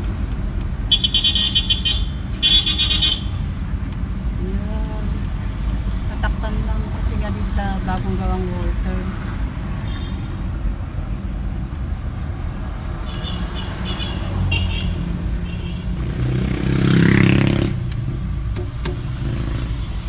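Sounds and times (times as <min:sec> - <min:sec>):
car engine and road rumble: 0:00.0 - 0:20.0
vehicle passing close by: 0:12.6 - 0:18.3.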